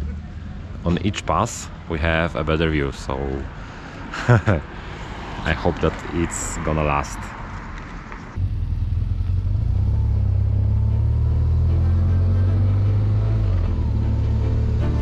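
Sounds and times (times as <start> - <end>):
motorcycle engine running: 8.4 - 15.0.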